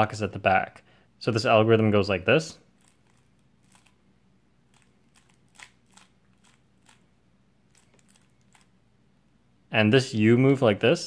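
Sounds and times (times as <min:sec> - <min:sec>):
puzzle cube clicking: 0:04.7 - 0:07.1.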